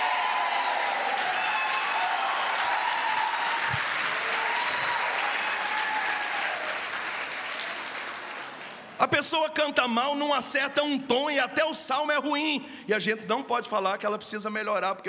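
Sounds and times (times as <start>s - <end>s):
congregation applauding: 0.0s - 9.3s.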